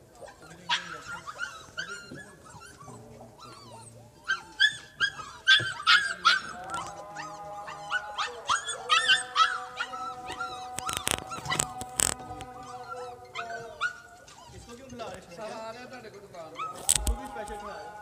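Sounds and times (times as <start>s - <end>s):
puppies whining and yipping: 0.0s - 18.0s.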